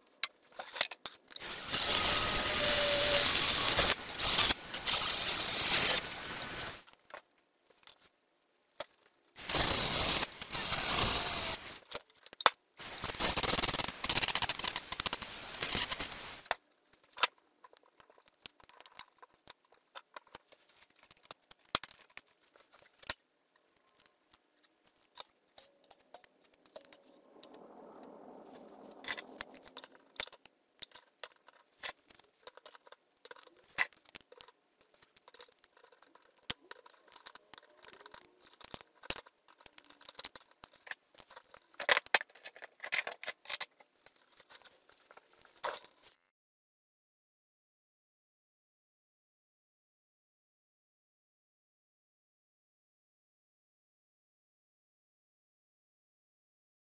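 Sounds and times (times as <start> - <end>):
rotary tool running: 1.4 - 6.8, 9.5 - 11.6.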